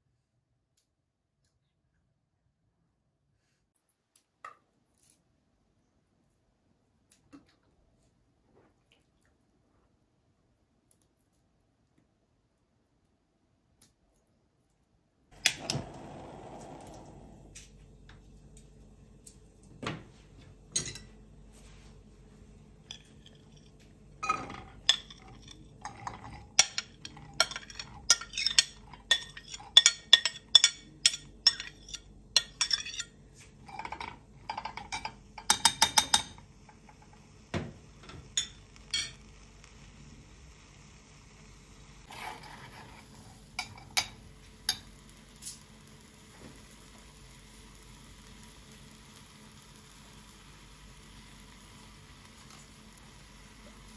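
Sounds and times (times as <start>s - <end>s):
utensils and dishes clinking: 22.9s - 36.4s
food sizzling in a pan: 34.6s - 53.9s.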